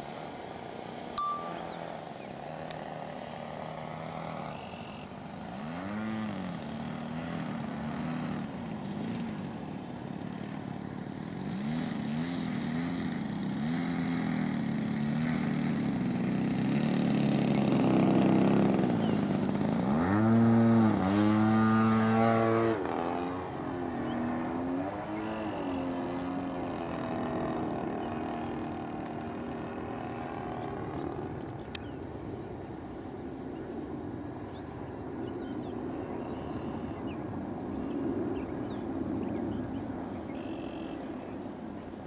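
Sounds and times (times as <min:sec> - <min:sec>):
model plane engine revving: 0:02.0 - 0:31.8.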